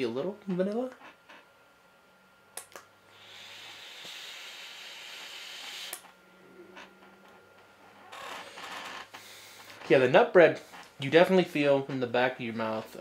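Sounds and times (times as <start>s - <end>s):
e-cigarette clicks: 2.6s - 2.9s, 5.7s - 6.1s
e-cigarette hissing: 3.1s - 6.1s.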